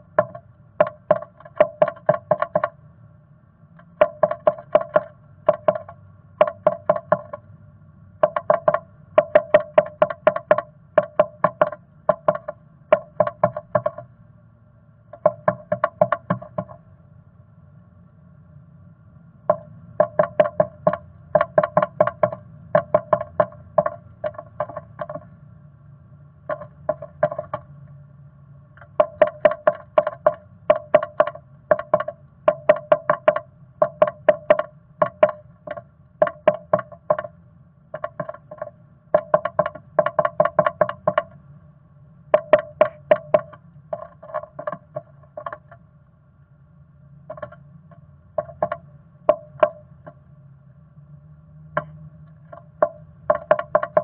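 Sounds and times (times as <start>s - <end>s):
bird pecking inside wooden box: 0.1s - 2.8s, 3.8s - 7.4s, 8.2s - 14.0s, 15.2s - 16.8s, 19.5s - 25.3s, 26.5s - 27.7s, 28.8s - 37.3s, 37.9s - 41.4s, 42.4s - 45.8s, 47.3s - 47.6s, 48.4s - 49.8s, 51.8s - 54.0s.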